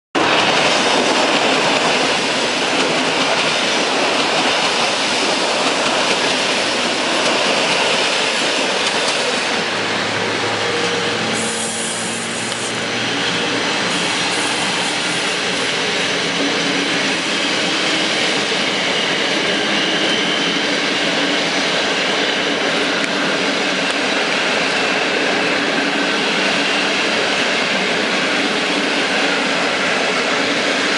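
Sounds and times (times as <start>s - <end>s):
train wheels rushing on rail: 0.2s - 30.9s.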